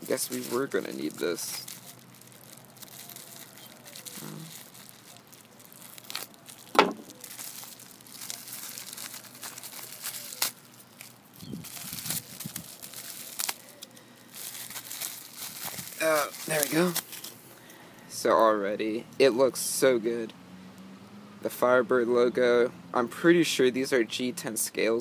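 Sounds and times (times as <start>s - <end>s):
bubble wrap crinkling and tearing: 0.0s - 17.4s.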